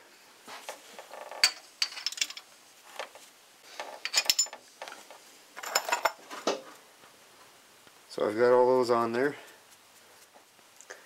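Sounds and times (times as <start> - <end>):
metal rocker arms clinking: 3.8 - 5.0, 5.6 - 6.2.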